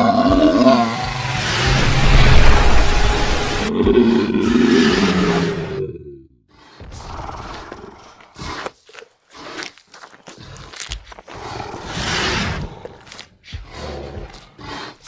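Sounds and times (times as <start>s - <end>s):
dinosaur roars: 0.0s - 6.2s.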